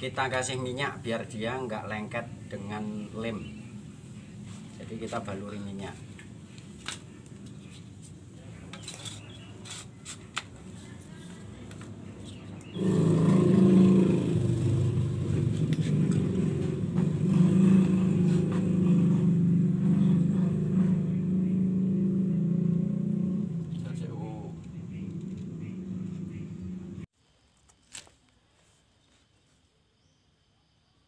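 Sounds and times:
engine humming: 10.2s - 27.1s.

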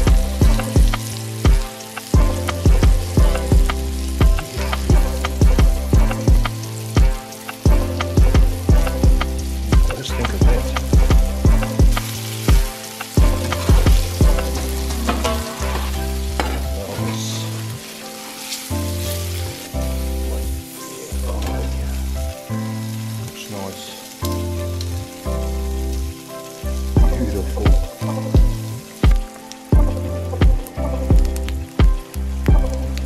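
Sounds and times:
background music with bass: 0.0s - 33.0s
fish sizzling on a grill: 0.0s - 33.0s
drum hits: 2.2s - 16.6s.

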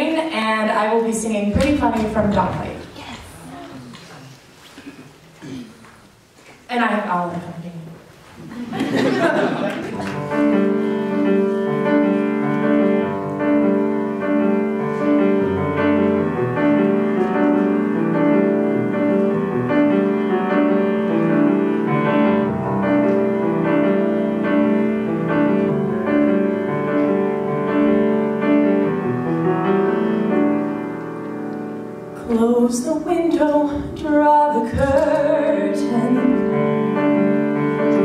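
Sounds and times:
solo piano chords: 9.0s - 38.0s.

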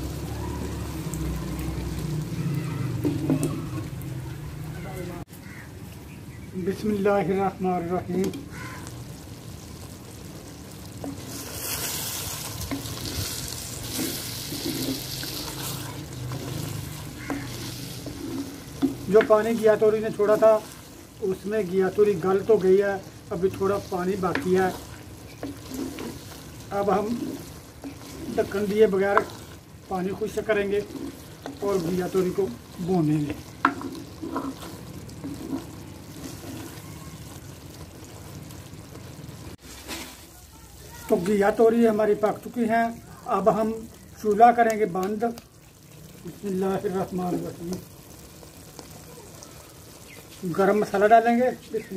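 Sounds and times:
vegetables sizzling in a pot: 0.0s - 51.9s
wooden spoon scraping a clay pot: 11.0s - 21.4s, 22.0s - 37.4s, 39.6s - 40.4s.

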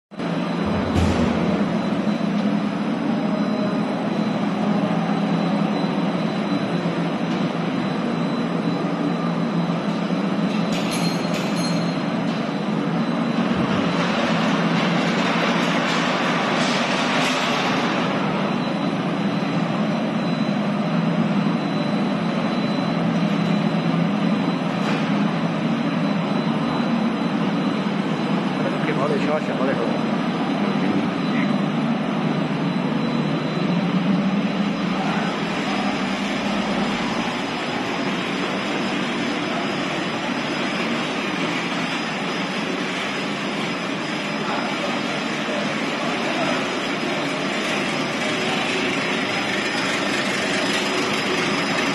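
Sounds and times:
high whine: 0.1s - 16.7s, 17.6s - 51.9s
machine humming and rushing: 0.2s - 11.0s, 30.0s - 51.9s.

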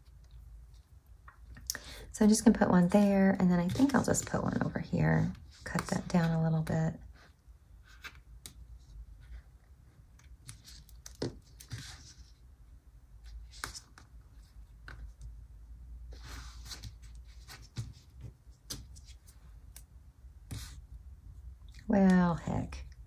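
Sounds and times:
tape rustling and clicking: 10.1s - 12.1s.

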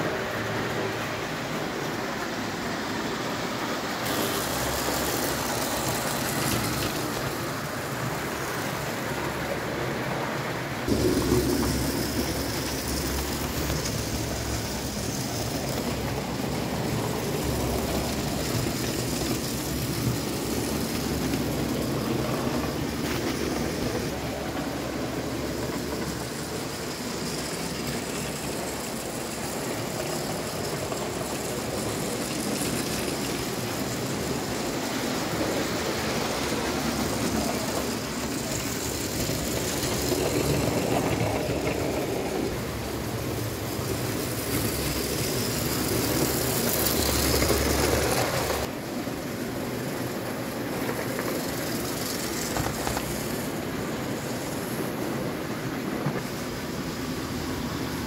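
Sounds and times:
model railcar running on track: 0.0s - 58.0s.

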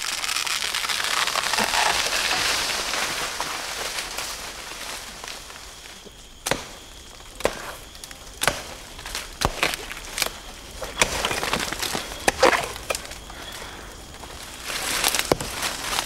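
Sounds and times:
palm tree crashing down: 0.0s - 4.8s
fronds rushing and rustling: 0.0s - 16.0s.

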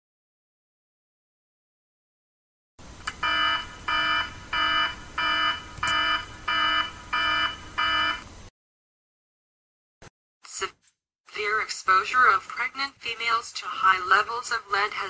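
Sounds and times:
electronic alarm buzzy beeps: 3.2s - 8.2s.

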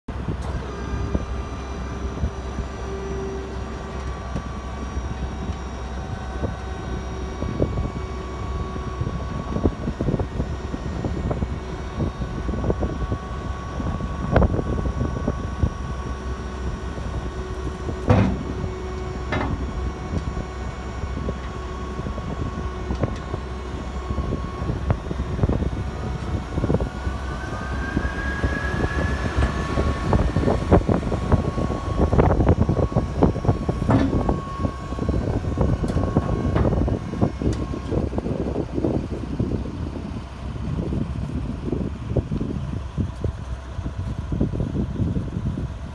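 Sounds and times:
truck engine rumble: 0.0s - 45.9s
machine whine: 0.1s - 41.9s
metal clanks and knocks: 18.0s - 19.8s, 33.8s - 34.4s.

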